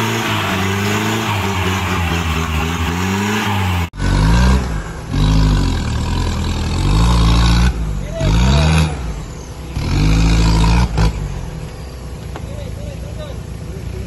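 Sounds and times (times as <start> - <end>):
engine revving in surges: 0.0 - 12.2
diesel engines revving: 0.0 - 14.0.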